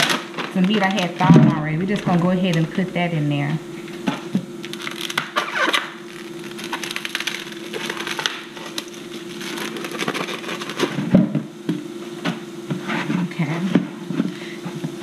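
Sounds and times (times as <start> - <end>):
steady hum: 0.0 - 15.0
plastic wrap crinkling: 4.6 - 11.0.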